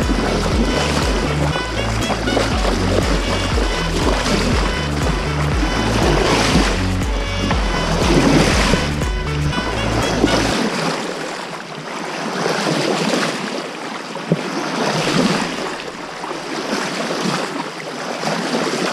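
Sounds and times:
background music: 0.0s - 10.7s
wind on microphone: 0.0s - 11.0s
water splashing along hull: 0.0s - 18.9s.

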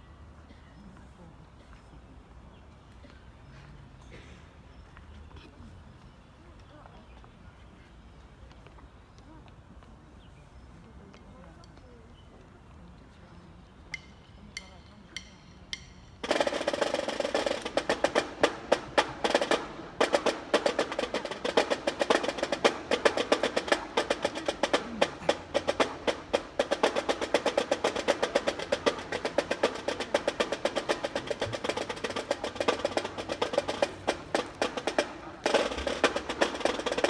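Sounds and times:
snare drum cadence: 16.2s - 37.0s.

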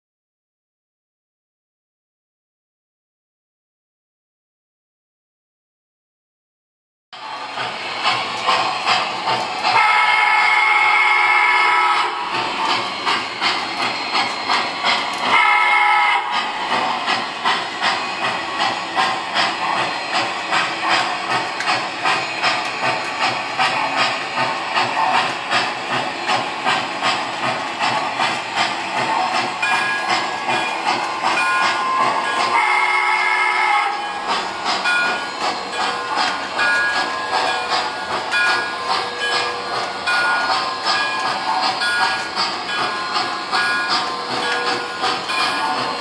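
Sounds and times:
steam chuff: 7.2s - 46.0s
wheels rattling on track: 7.2s - 46.0s
model train steam whistle: 9.6s - 12.6s, 15.1s - 16.6s, 31.7s - 34.3s.

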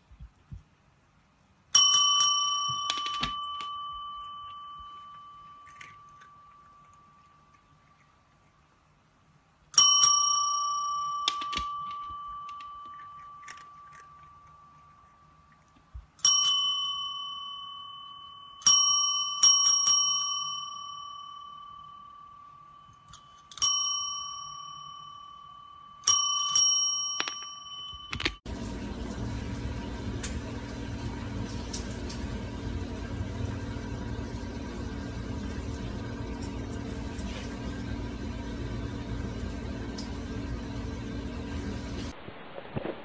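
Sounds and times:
metal desk bell ringing: 1.7s - 7.2s, 9.8s - 14.8s, 16.2s - 28.4s.

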